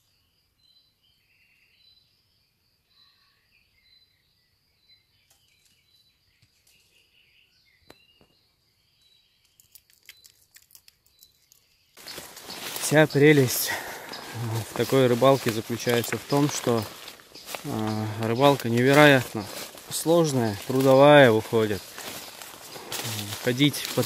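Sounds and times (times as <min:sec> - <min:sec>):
faint woodland birdsong: 0:00.0 - 0:24.0.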